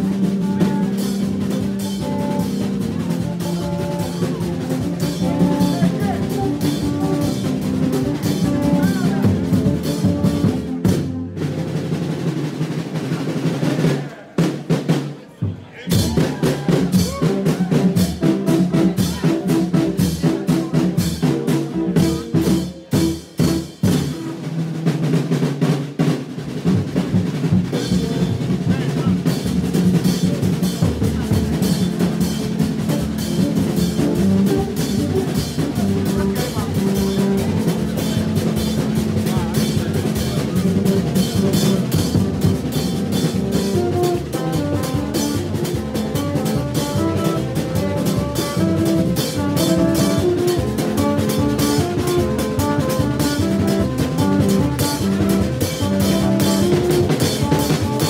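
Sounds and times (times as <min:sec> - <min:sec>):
horns hooting low notes: 0:00.0 - 0:12.3, 0:27.7 - 0:58.0
drums and percussion: 0:00.0 - 0:58.0.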